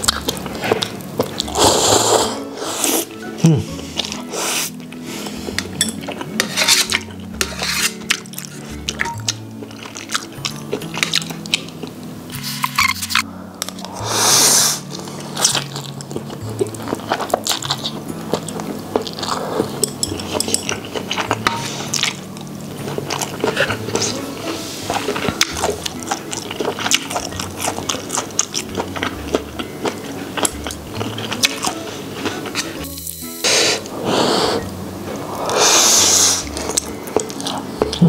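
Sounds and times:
chewing and lip smacks: 24.9s - 32.7s.

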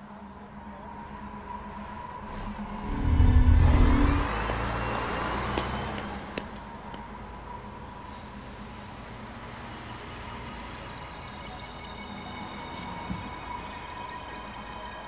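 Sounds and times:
traffic rumble: 0.1s - 11.2s
steady low hum: 2.2s - 4.5s
car passing by: 2.2s - 6.4s.

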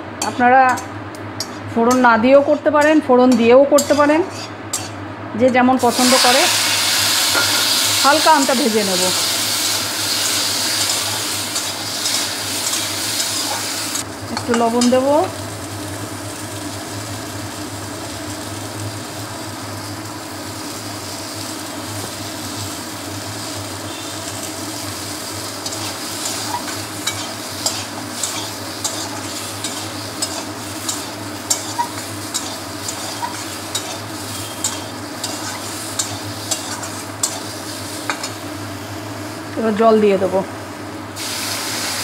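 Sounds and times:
spatula scraping pan: 3.8s - 5.0s, 25.6s - 37.5s
fruit sizzling in oil: 5.8s - 42.0s.

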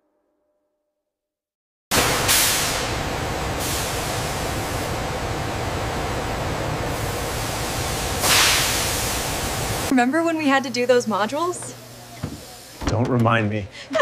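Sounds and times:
steam hissing from pipes: 2.0s - 9.9s, 11.2s - 12.8s.

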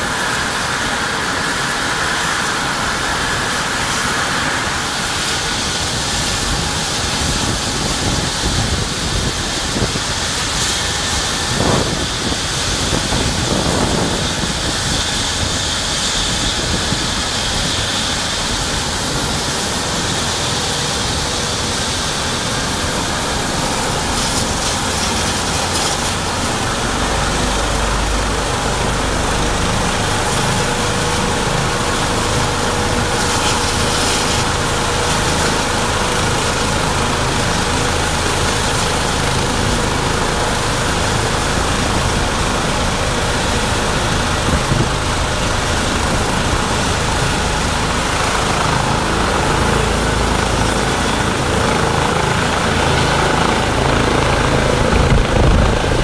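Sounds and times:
helicopter turbine and rotor: 0.0s - 56.0s
high turbine whine: 0.0s - 56.0s.

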